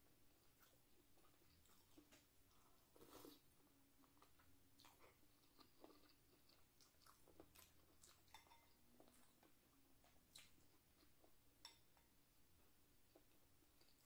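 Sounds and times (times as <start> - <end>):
close-up chewing: 0.4 - 11.4.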